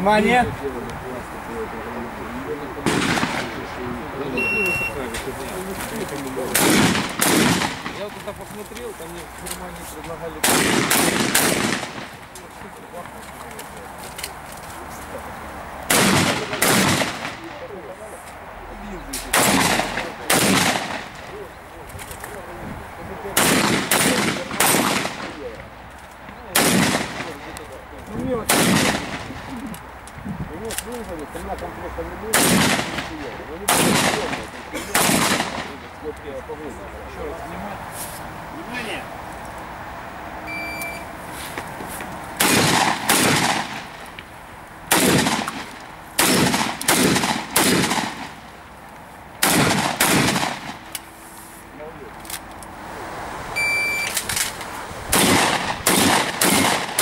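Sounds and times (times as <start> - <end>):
shotgun shots: 2.8 - 3.8, 6.4 - 8.3, 10.4 - 12.3, 15.9 - 17.7, 19.2 - 21.4, 23.4 - 25.6, 26.5 - 27.5, 28.4 - 29.5, 32.3 - 35.8, 42.4 - 44.0, 44.9 - 48.4, 49.4 - 50.9, 55.1 - 57.0
electronic shot timer beep: 4.4 - 5.0, 40.5 - 41.1, 53.6 - 54.1.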